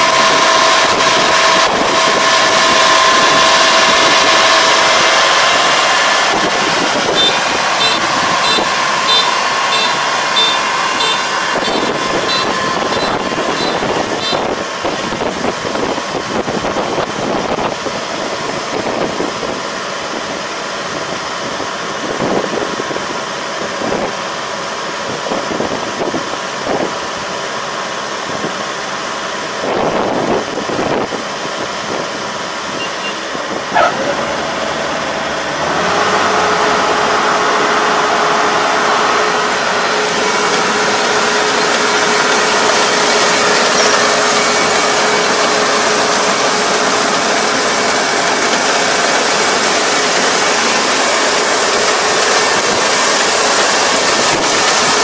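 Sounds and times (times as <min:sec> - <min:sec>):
combine harvester running: 0:00.0 - 0:55.0
high beep: 0:07.2 - 0:14.4, 0:32.8 - 0:33.2.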